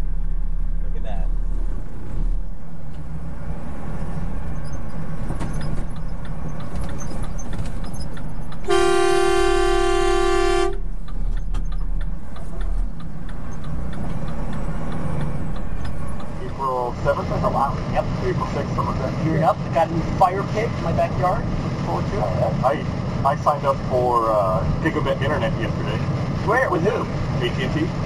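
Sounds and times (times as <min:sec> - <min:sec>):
engine low rumble: 0:00.0 - 0:28.0
vehicle horn blast: 0:08.7 - 0:10.8.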